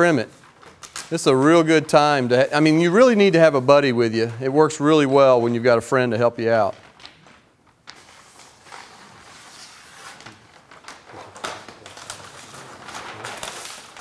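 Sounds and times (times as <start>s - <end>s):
paper backing peeling and rustling: 0.0s - 3.3s, 6.5s - 14.0s.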